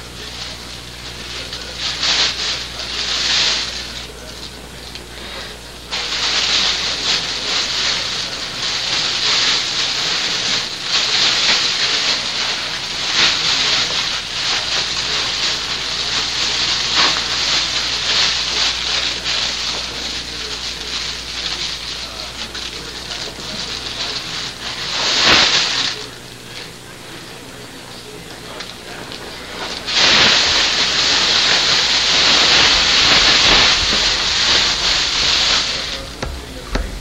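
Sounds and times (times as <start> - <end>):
sack rustling and crackling: 29.6 - 37.0.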